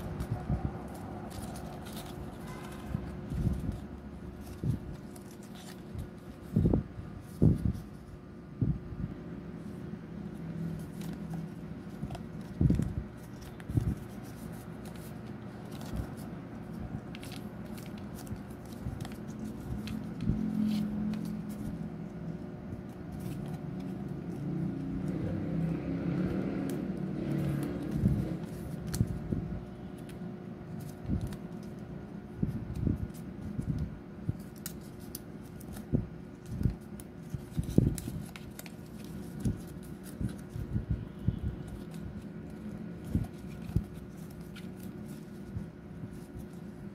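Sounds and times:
card tapping and scraping: 0:10.2 - 0:46.9.

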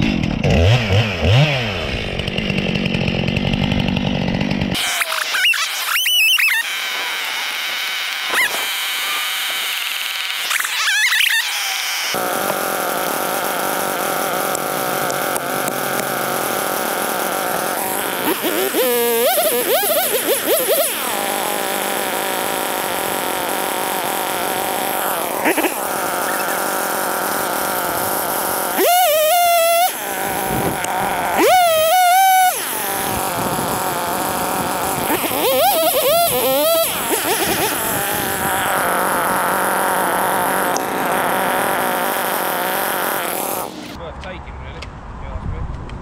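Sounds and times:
petrol chainsaw running: 0:00.0 - 0:44.0.

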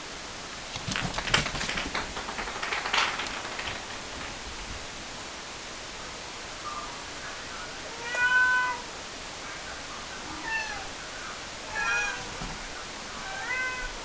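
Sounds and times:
kitten meowing high-pitched: 0:07.9 - 0:08.8.

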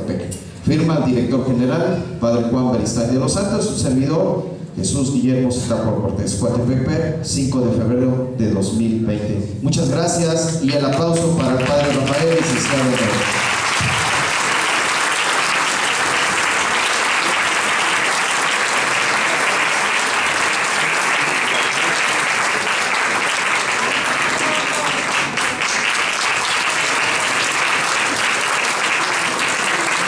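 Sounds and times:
audience applauding: 0:10.5 - 0:30.0.

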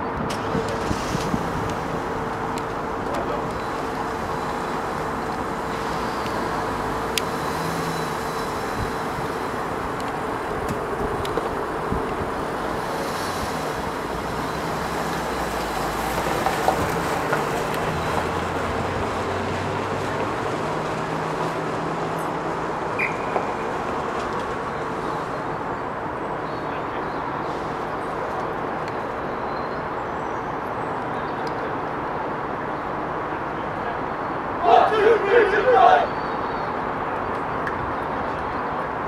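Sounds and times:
low shifting hum: 0:00.0 - 0:16.3.

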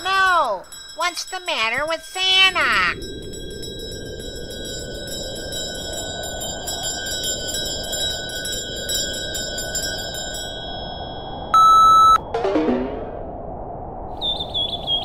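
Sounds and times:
sleigh bells jingling: 0:00.0 - 0:06.6.

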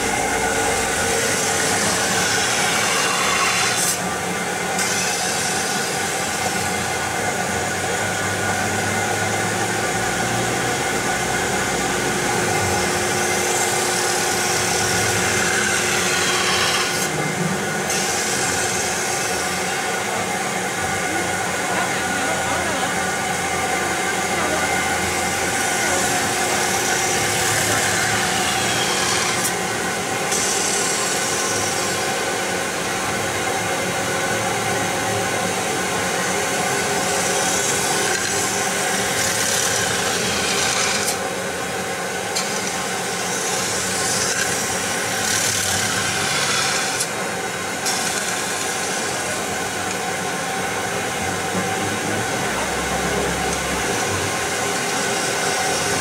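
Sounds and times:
machine hum: 0:00.0 - 0:04.8.

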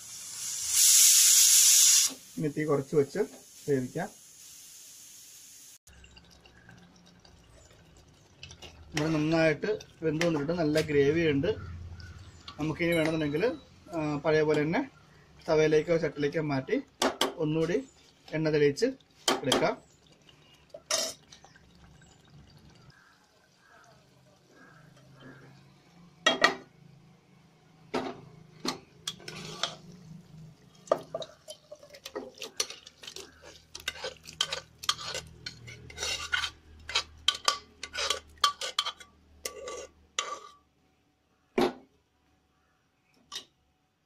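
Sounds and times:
metal spoon clinking on pots: 0:12.4 - 0:13.6, 0:20.8 - 0:21.5, 0:28.0 - 0:30.0, 0:30.7 - 0:40.6.

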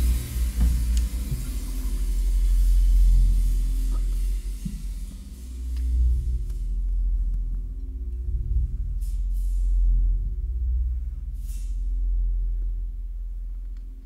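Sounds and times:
ringing cymbal tone: 0:00.0 - 0:07.2
high cymbal swishes: 0:00.0 - 0:12.5
deep drum drone: 0:00.0 - 0:14.0.

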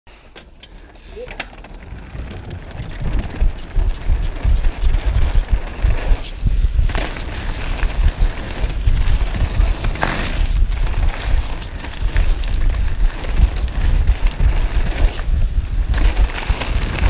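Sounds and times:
bike clatters: 0:00.1 - 0:17.0
bike rattling over bumps: 0:00.8 - 0:17.0
wind buffeting: 0:01.7 - 0:17.0.

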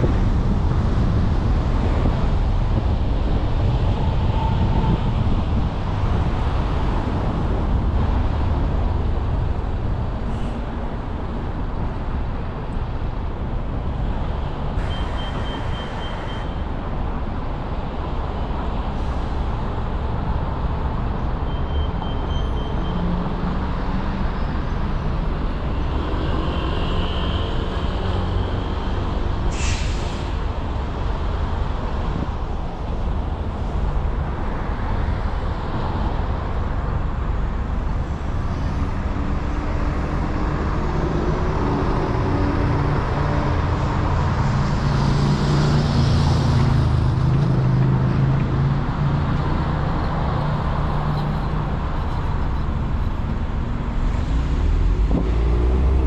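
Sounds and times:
bus and cars passing: 0:00.0 - 0:56.0
traffic engines rumbling: 0:00.0 - 0:56.0
short hiss: 0:29.5 - 0:30.3.

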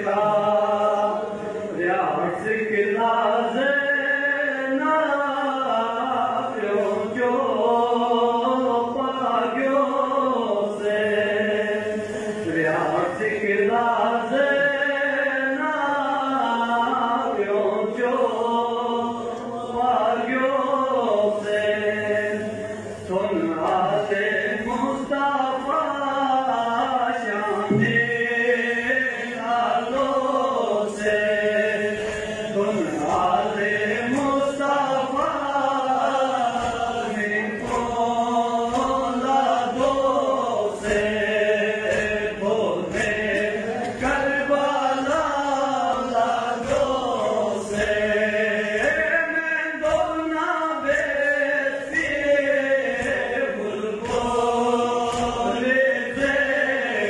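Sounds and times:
crowd of men chanting: 0:00.0 - 0:57.0
man chanting into a microphone: 0:00.0 - 0:57.0
low rhythmic thumps: 0:21.1 - 0:57.0.

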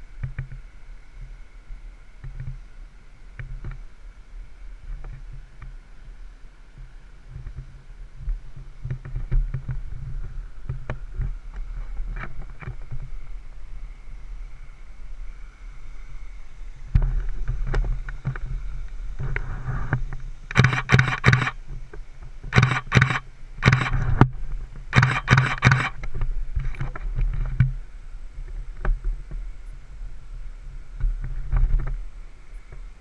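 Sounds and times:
vehicle engine humming: 0:00.0 - 0:33.0
loud irregular crunching: 0:20.5 - 0:21.6, 0:22.5 - 0:24.3, 0:24.9 - 0:26.0.

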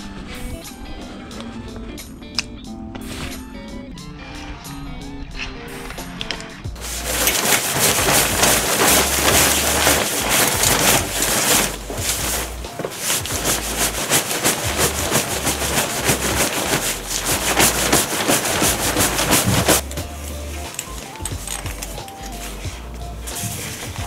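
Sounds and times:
fabric cover rustling: 0:06.8 - 0:24.0.

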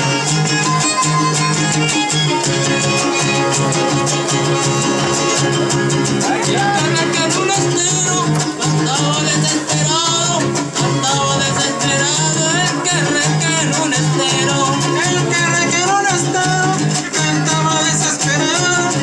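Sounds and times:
violin melody: 0:00.0 - 0:08.7
fast strummed guitar chords: 0:00.0 - 0:19.0.

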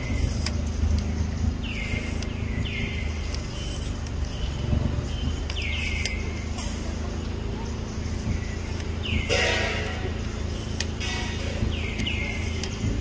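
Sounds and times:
steady low rumble: 0:00.0 - 0:13.0
bird calling high notes: 0:09.0 - 0:12.7.

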